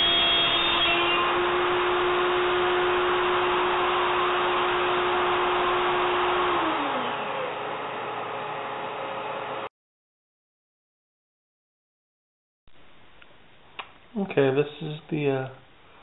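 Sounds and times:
router spindle running and spinning down: 0.0 - 9.7.

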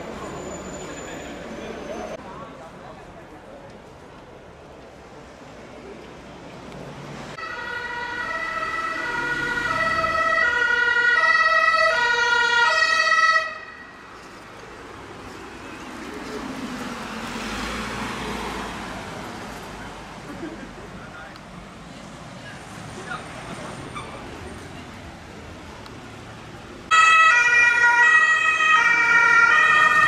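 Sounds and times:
ambulance engine and tyre noise: 0.0 - 30.0
two-tone emergency siren: 7.4 - 14.0, 26.9 - 30.0.

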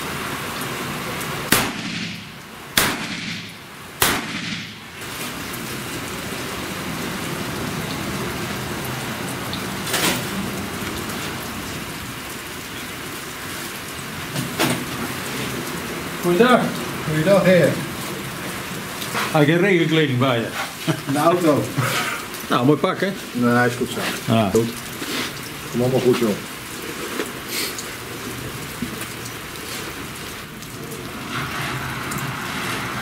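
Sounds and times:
rain hissing: 0.0 - 33.0
pistol shots echoing: 1.5 - 4.8.

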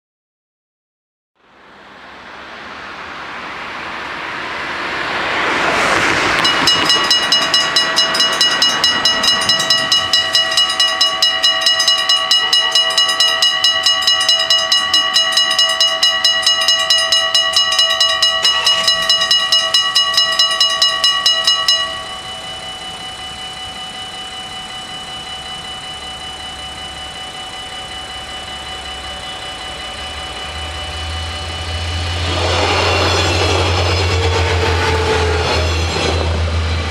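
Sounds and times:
low train rumble: 1.4 - 36.9
level crossing bells ringing: 6.4 - 34.3.

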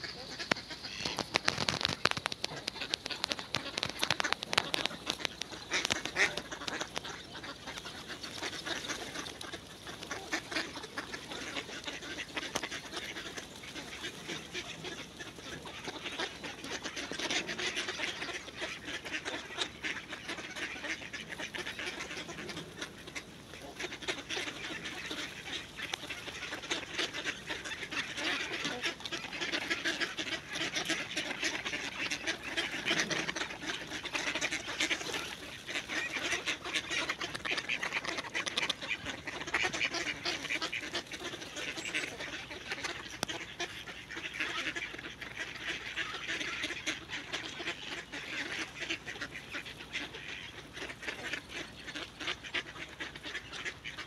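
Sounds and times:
ducks quacking: 0.0 - 54.0.

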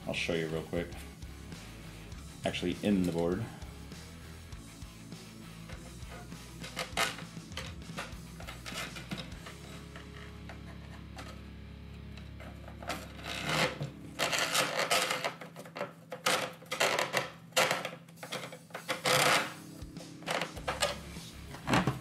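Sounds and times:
metal scraping on metal: 5.7 - 11.4, 12.4 - 19.6.

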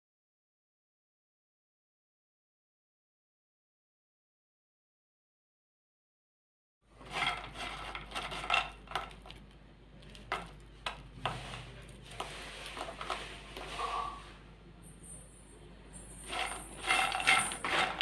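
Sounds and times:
kitchen utensils clinking on cookware: 10.2 - 18.0.

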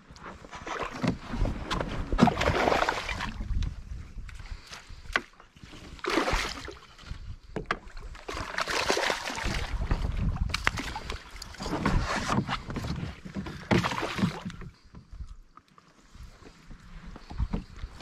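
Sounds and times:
fish splashing in water: 2.2 - 3.4, 6.0 - 6.9, 8.2 - 9.9.

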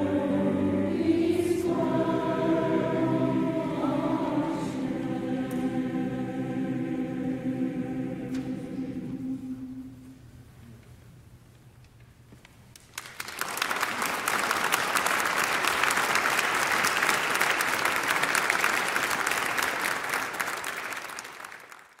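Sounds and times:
audience applause: 12.8 - 22.0.

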